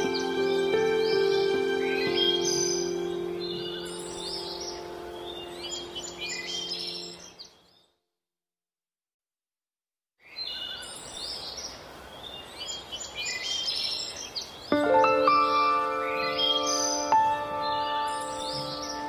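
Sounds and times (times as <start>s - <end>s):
held music chord: 0.0s - 7.3s, 14.7s - 19.0s
birds chirping and whistling: 0.0s - 7.6s, 14.7s - 19.0s.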